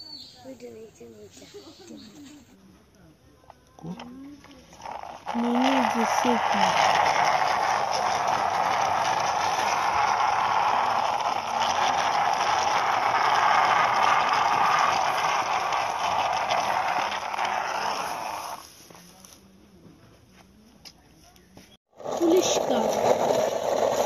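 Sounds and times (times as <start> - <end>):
toy tracks scraping on concrete: 4.4 - 18.9, 21.9 - 24.0.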